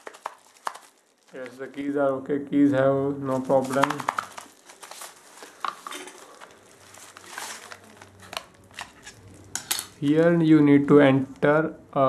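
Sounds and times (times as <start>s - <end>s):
plastic glove crinkling: 0.0s - 2.0s, 3.2s - 10.4s.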